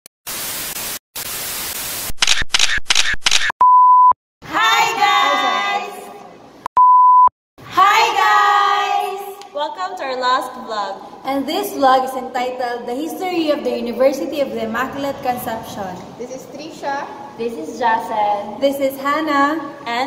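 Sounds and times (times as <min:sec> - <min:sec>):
static hiss bursts: 0:00.3 - 0:02.7
beep tone: 0:03.6 - 0:04.2, 0:06.8 - 0:07.3
young women calling out excitedly: 0:04.5 - 0:06.2, 0:07.7 - 0:09.4.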